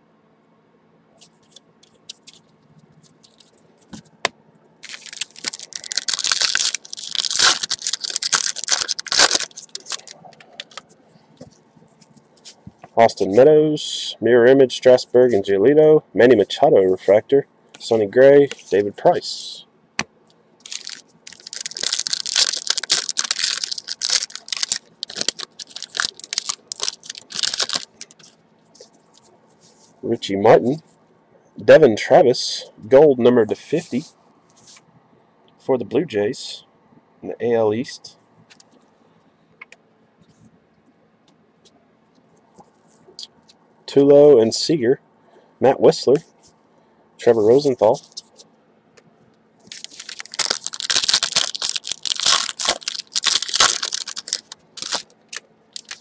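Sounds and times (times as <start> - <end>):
wrapper tearing and crinkling: 4.8 - 10.8, 20.6 - 28.4, 49.7 - 56.0.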